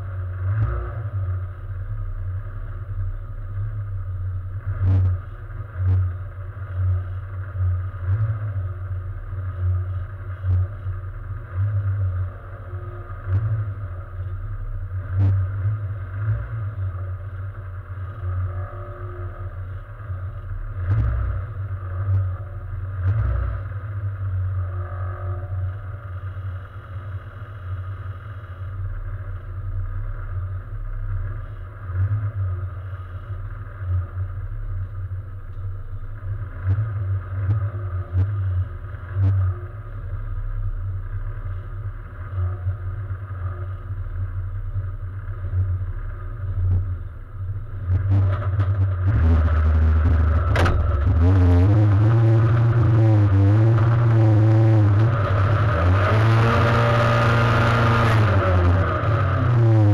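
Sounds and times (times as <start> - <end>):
race car engine idling: 0.0 - 59.9
sharp knocks or clicks: 50.4 - 51.3.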